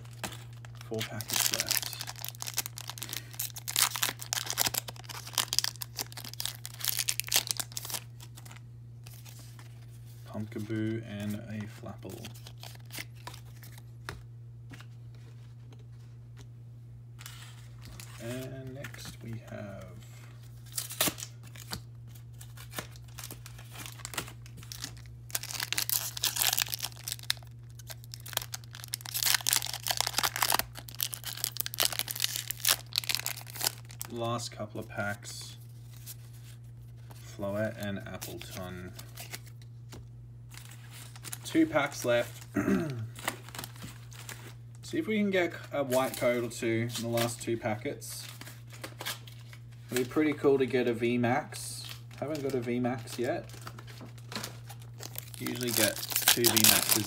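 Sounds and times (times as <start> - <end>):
foil wrapper tearing and crinkling: 0.0 - 9.4, 22.4 - 34.1, 43.2 - 44.6, 51.9 - 57.0.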